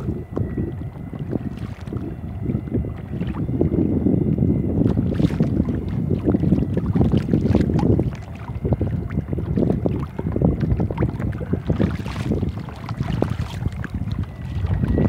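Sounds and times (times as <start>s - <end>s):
wind buffeting microphone: 0.0s - 15.0s
waves splashing against kayak hull: 4.8s - 15.0s.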